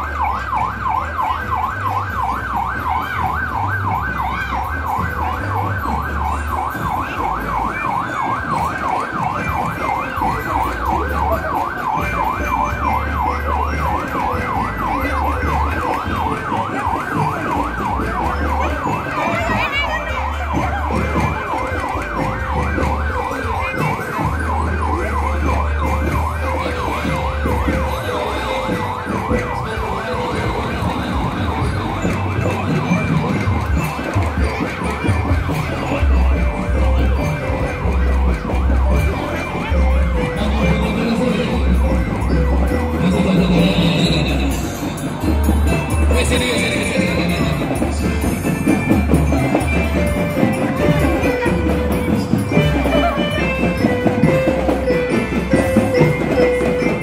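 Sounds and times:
electronic siren yelping: 0.0 - 35.7.

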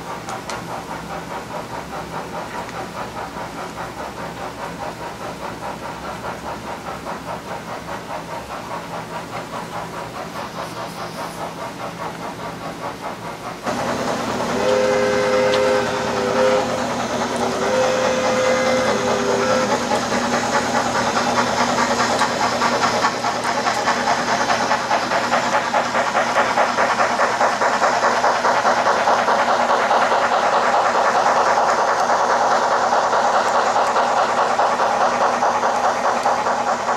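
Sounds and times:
rail clatter: 0.0 - 36.9
steam locomotive chuffing: 0.0 - 36.9
two-note steam whistle: 14.3 - 20.0.

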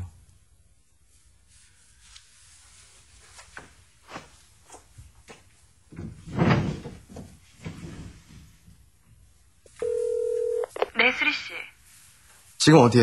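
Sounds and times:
thump with rustling: 5.9 - 8.8.

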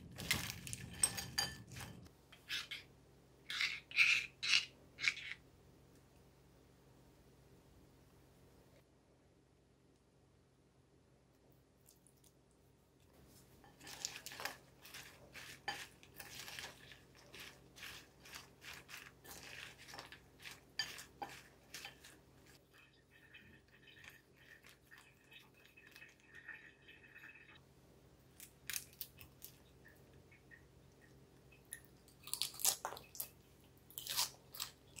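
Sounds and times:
salad crackling and crunching: 0.1 - 2.1, 13.6 - 22.6, 31.6 - 35.0.

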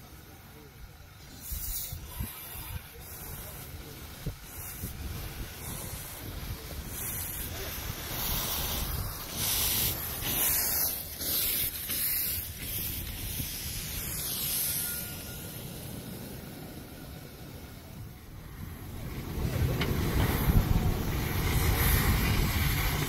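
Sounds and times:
steam hissing from locomotive: 0.0 - 23.0
wind rumble on microphone: 1.3 - 10.6, 17.9 - 23.0.

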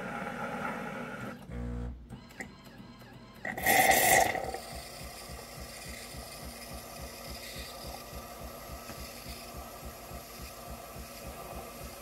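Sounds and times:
milk frother pulsing: 3.4 - 12.0
espresso machine hissing burst: 3.5 - 8.0.

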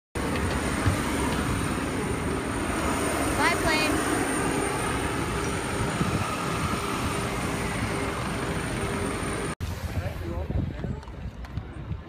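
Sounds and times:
jet engine whining: 0.2 - 10.3.

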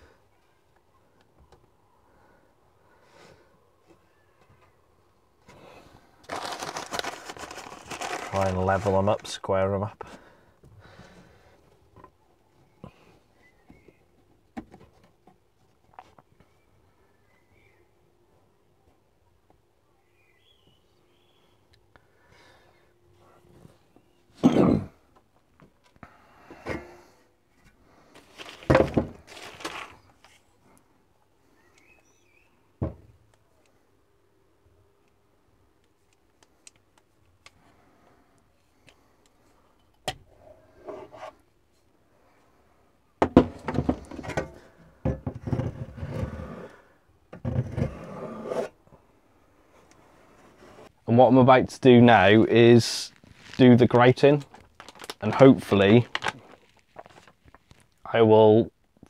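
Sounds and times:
handling rustles: 6.2 - 9.4, 28.1 - 30.6, 53.1 - 58.0.

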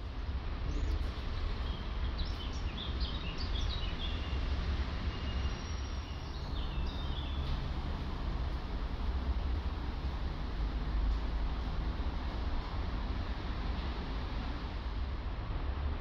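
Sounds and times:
small birds chirping: 0.6 - 7.6.

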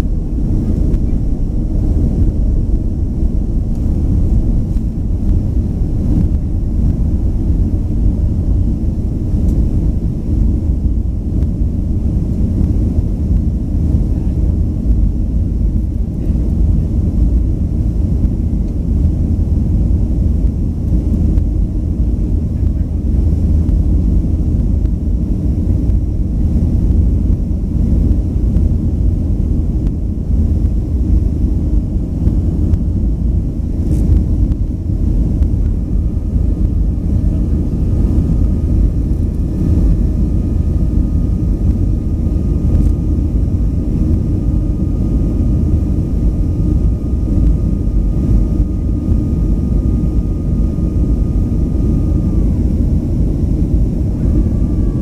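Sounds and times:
rushing air: 0.0 - 14.0
faint steady whine: 0.0 - 55.0
jet engine cabin rumble: 0.0 - 55.0.

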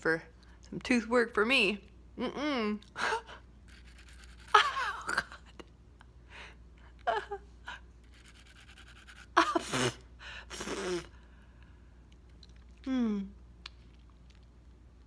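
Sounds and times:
nail file rasping: 3.7 - 4.6, 8.1 - 9.4.

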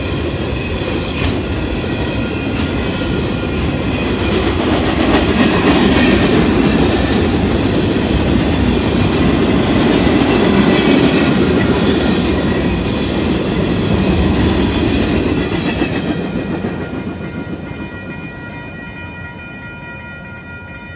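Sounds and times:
freight train wheels clattering: 0.0 - 19.5
level crossing warning bell: 16.2 - 20.9.

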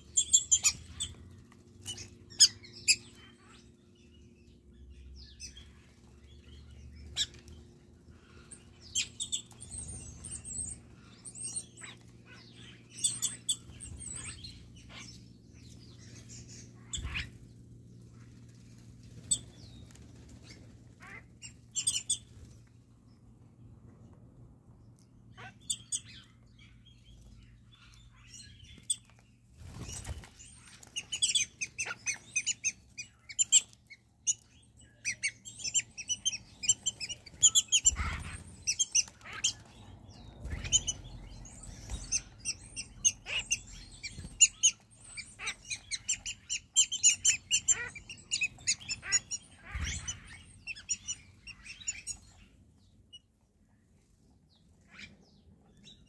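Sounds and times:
starlings chirping: 0.0 - 22.6, 25.2 - 53.2.

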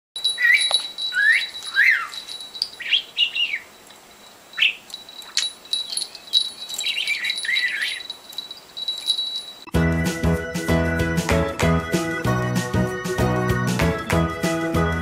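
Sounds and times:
budgerigar chirping: 2.8 - 3.7.

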